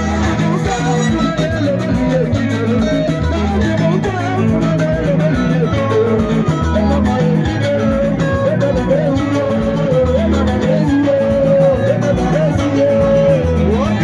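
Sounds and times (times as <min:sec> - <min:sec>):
guitar-led dance music: 0:00.0 - 0:14.0.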